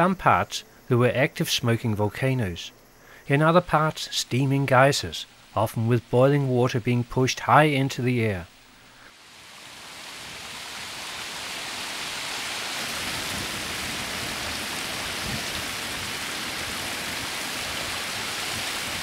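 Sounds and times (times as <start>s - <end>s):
geyser steam hissing: 9.1s - 19.0s
falling water spray: 9.2s - 19.0s.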